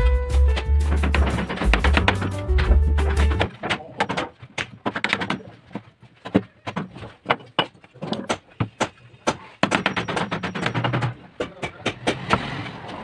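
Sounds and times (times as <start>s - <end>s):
hammer striking chisel handle: 7.6s - 12.4s.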